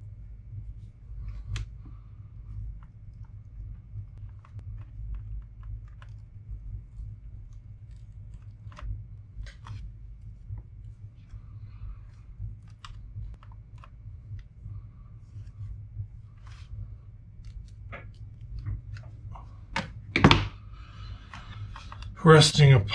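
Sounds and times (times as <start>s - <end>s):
steady low hum: 0.0s - 22.9s.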